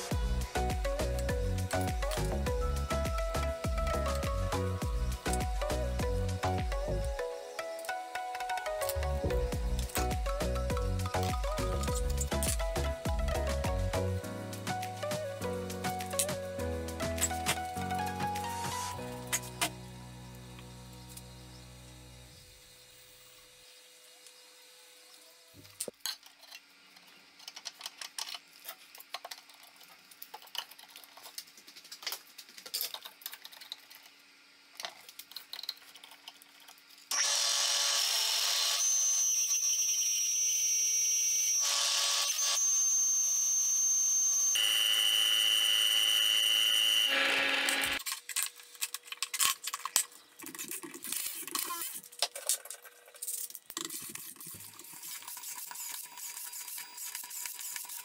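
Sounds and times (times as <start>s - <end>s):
power tool whining: 37.1s - 48.0s.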